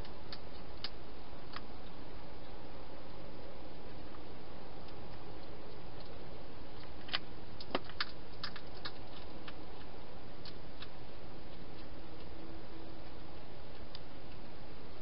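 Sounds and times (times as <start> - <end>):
hedgehog crunching dry food: 4.8 - 14.5.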